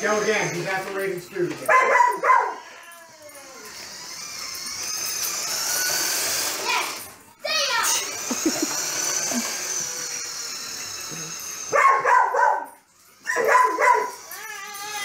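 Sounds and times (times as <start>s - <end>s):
dog barking excitedly: 1.6s - 2.6s, 11.7s - 14.2s.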